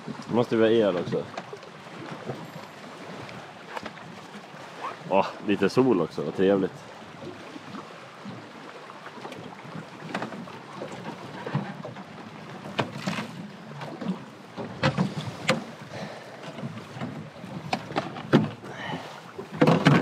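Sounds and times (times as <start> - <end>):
gear knocking in boat: 9.2 - 20.0.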